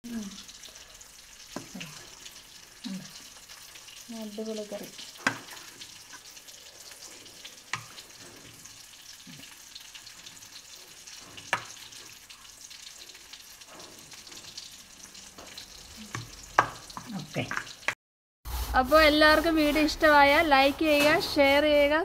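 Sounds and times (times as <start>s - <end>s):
curry sizzling in a pan: 0.0s - 22.0s
spatula stirring and scraping: 0.4s - 4.1s, 4.8s - 21.2s
spatula knocking on pan: 16.2s - 17.7s.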